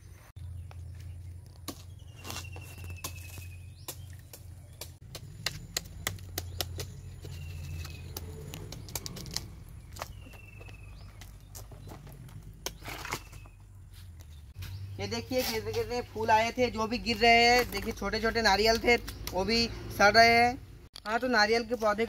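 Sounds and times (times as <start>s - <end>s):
dry palm fronds cracking and snapping: 1.5s - 10.3s.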